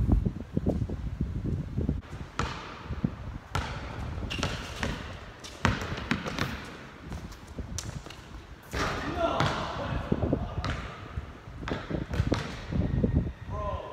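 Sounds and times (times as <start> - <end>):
basketball bouncing on court: 2.4 - 9.9, 10.6 - 12.8.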